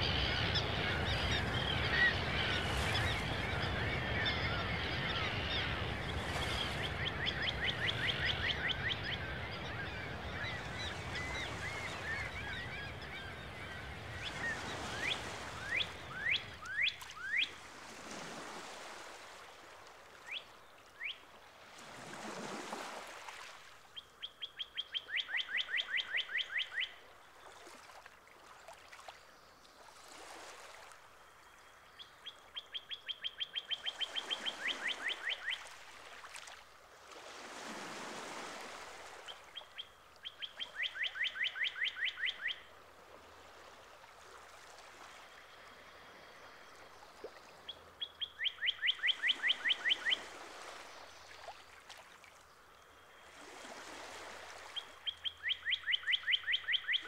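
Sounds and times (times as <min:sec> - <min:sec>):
songbird trilling: 0:48.0 - 0:50.2, 0:54.8 - 0:57.0.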